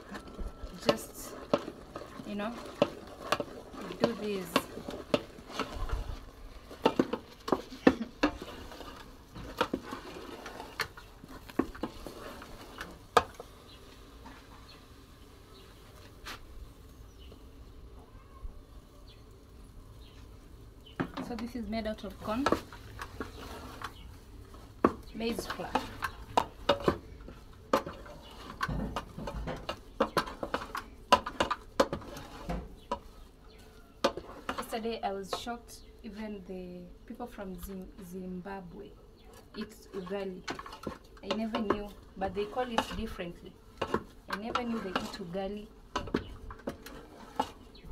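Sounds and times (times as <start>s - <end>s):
spoon knocking and scraping a pot: 0.0s - 13.5s, 21.0s - 33.2s, 34.0s - 35.5s, 39.3s - 47.9s.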